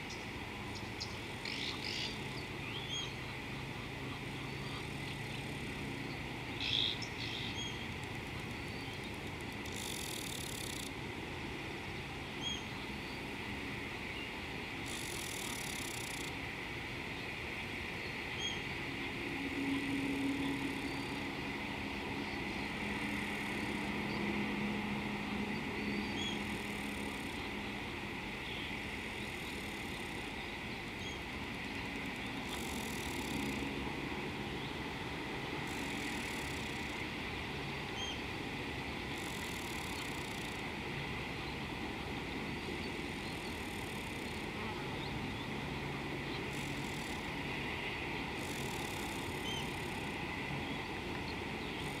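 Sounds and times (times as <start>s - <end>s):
high hiss: 0.0s - 52.0s
water hiss and low rumble: 0.0s - 52.0s
faint bird chirps: 49.4s - 49.8s.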